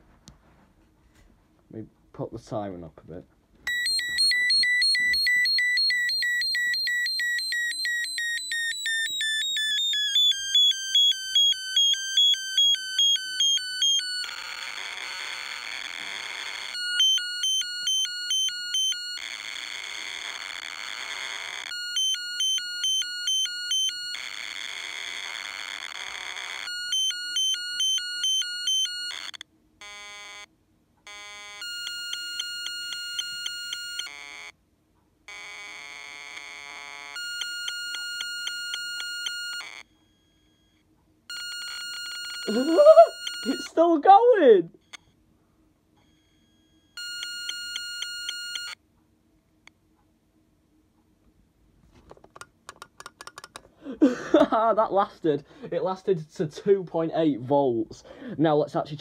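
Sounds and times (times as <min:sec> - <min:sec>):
alarm siren: 0:03.7 - 0:30.5, 0:37.2 - 0:43.8.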